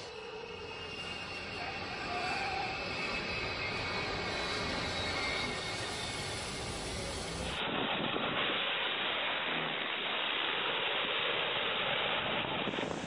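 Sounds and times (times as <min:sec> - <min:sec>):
small plane passing low: 0:00.0 - 0:13.0.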